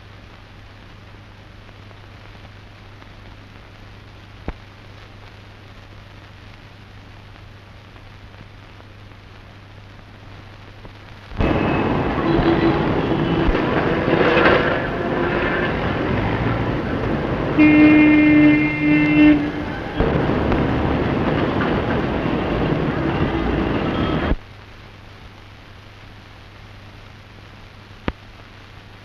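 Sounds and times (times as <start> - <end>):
film soundtrack hiss and hum: 0.0 - 29.0
car horns honking: 11.4 - 16.0, 17.5 - 20.1
city street traffic: 11.4 - 24.4.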